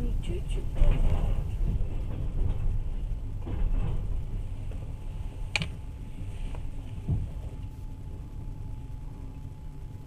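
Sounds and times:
train wheels rumbling: 0.0s - 7.7s.

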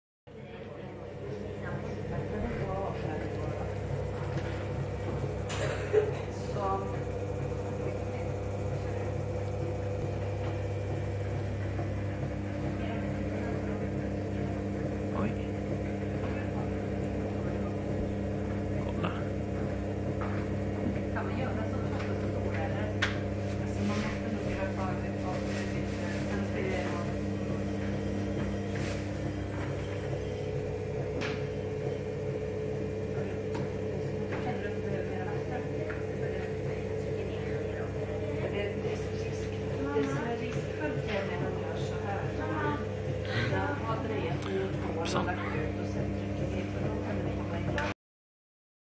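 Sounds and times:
potter's wheel motor hum: 0.3s - 48.0s.

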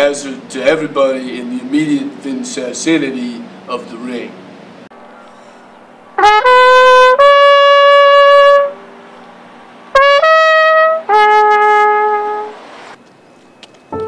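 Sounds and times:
trumpet playing long notes: 6.2s - 9.1s, 9.9s - 12.6s.

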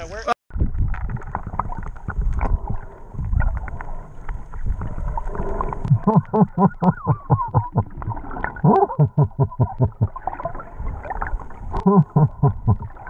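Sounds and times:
wind and water rumble: 0.0s - 13.0s
person laughing: 6.0s - 7.9s, 8.6s - 10.2s, 11.8s - 12.9s.

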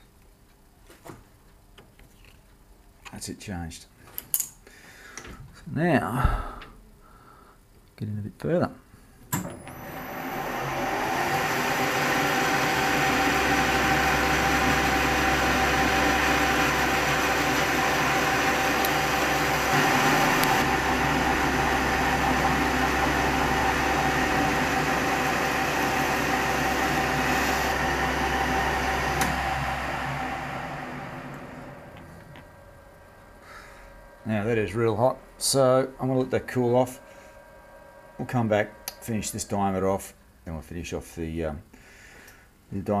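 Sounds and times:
metal lathe whining: 9.5s - 39.8s.

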